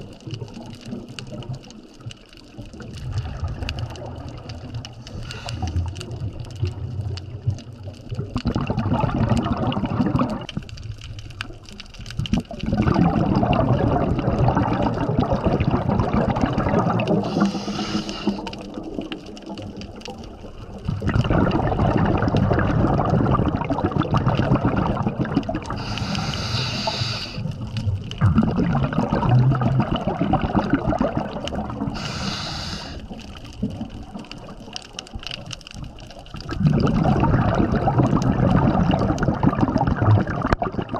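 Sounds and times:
bubbling exhalations underwater: 0:00.0 - 0:40.9
regulator hissing inhalations: 0:05.1 - 0:05.8, 0:17.2 - 0:18.6, 0:25.8 - 0:27.5, 0:31.9 - 0:33.1.

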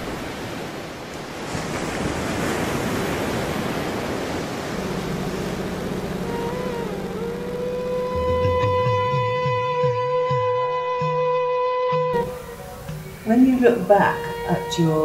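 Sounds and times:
sea surf rushing: 0:00.0 - 0:11.3, 0:12.0 - 0:15.0
low steady drone: 0:04.5 - 0:11.4
flute-like note bending: 0:06.0 - 0:15.0.

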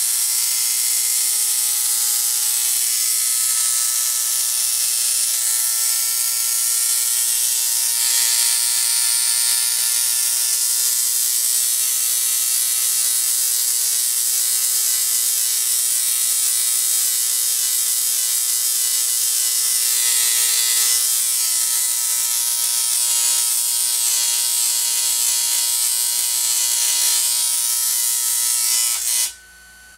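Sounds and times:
tesla coil buzzing: 0:00.0 - 0:29.9
spark crackling: 0:18.3 - 0:29.4.

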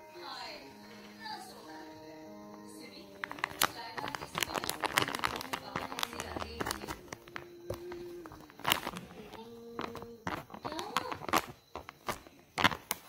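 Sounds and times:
plastic wrapper crinkling: 0:02.9 - 0:13.0.

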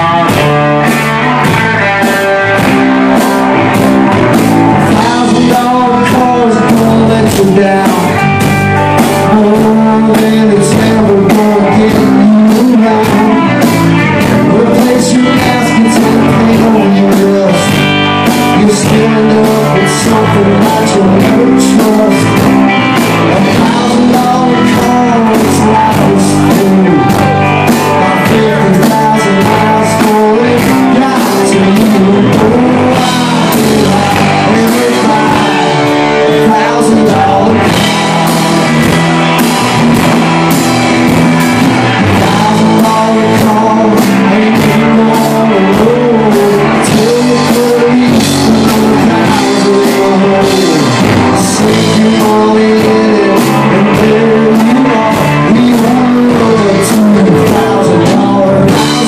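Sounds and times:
bass guitar: 0:00.0 - 0:59.0
drum kit steady beat: 0:00.0 - 0:59.0
electric guitars: 0:00.0 - 0:59.0
lead vocal singing: 0:00.0 - 0:59.0.

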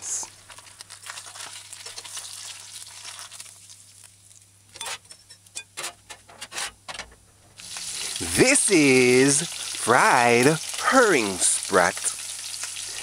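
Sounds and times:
fish sizzling in oil: 0:00.2 - 0:04.6, 0:07.6 - 0:13.0.

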